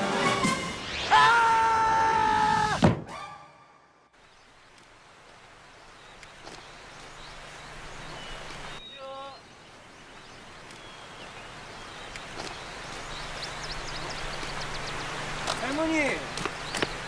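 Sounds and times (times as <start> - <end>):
steady hiss: 4.2 - 17.0
faint bird chirps: 5.8 - 15.2.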